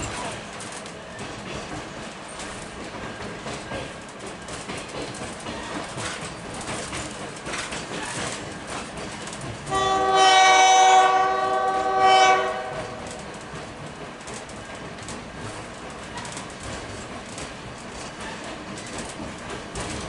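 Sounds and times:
train wheels on track: 0.0 - 20.0
locomotive air horn: 9.7 - 13.1.

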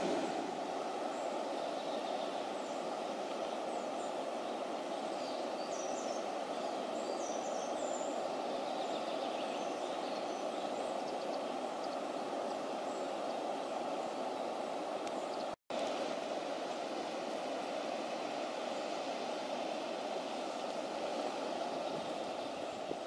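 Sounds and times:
rushing water: 0.0 - 23.0.

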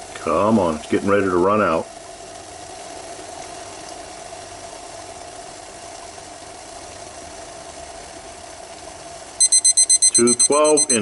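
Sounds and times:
water boiling in a pot: 0.0 - 11.0.

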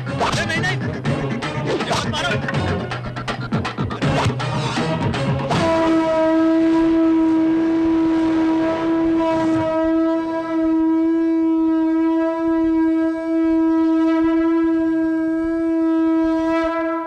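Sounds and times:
conch shell horn blowing: 5.5 - 17.0.

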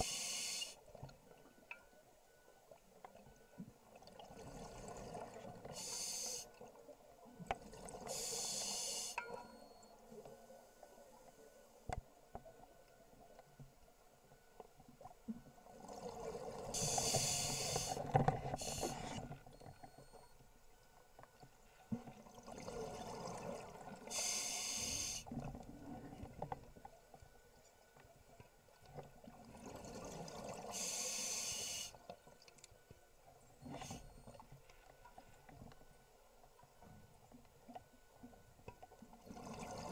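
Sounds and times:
diver breathing through regulator: 5.7 - 6.5, 8.1 - 9.2, 16.8 - 19.3, 24.1 - 25.3, 30.7 - 32.0.

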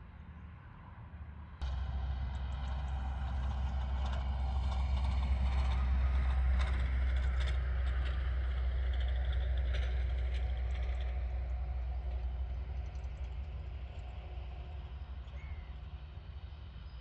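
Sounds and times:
distant jet engines rumbling: 1.6 - 17.0.

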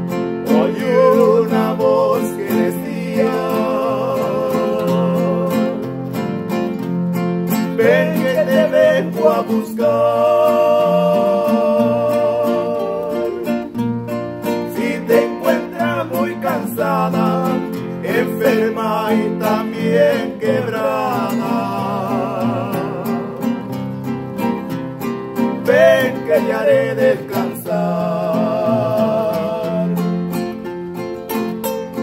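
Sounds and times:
plucked guitar: 0.0 - 32.0
person singing with vibrato: 0.4 - 6.0, 7.7 - 13.8, 14.6 - 23.8, 25.6 - 30.2.

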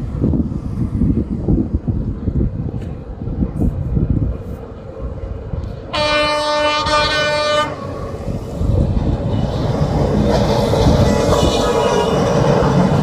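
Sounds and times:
locomotive rumbling along track: 0.0 - 13.0
locomotive horn blast: 5.9 - 7.9.

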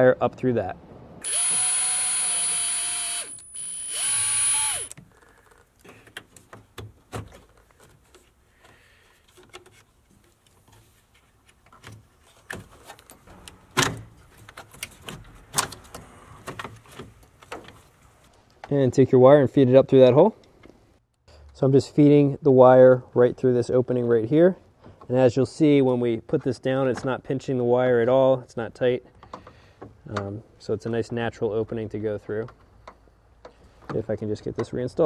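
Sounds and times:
power drill whining: 1.2 - 5.0.

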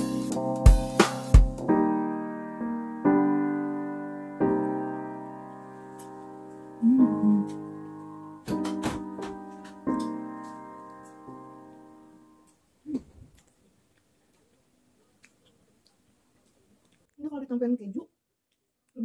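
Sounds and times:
slow piano chords: 0.0 - 12.6.

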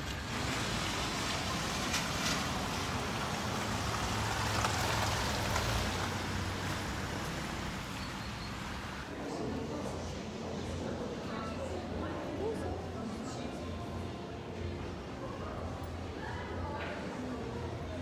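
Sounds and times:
rushing outdoor noise: 0.0 - 11.1.

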